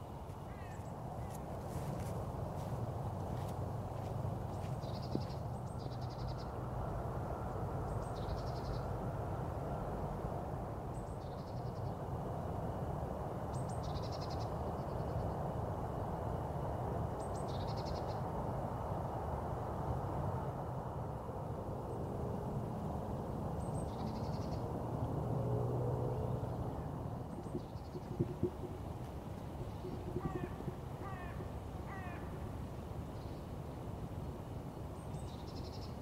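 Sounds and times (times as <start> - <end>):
low background rumble: 21.1 - 36.0
songbird singing trill: 26.2 - 32.5.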